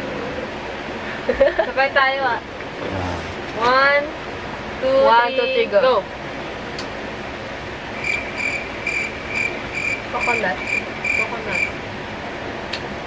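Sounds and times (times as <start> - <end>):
steady background hiss: 0.0 - 13.0
cricket chirping: 8.0 - 11.8.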